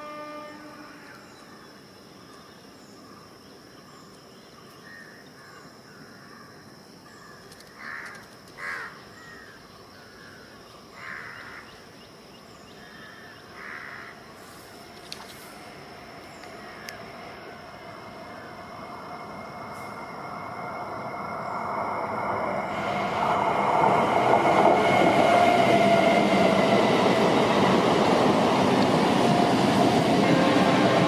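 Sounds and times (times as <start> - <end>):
steady high whine: 14.1 - 31.0.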